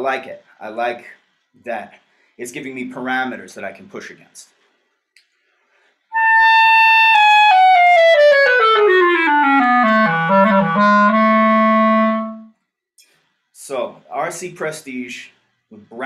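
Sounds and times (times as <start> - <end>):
solo clarinet: 6.1 - 12.5.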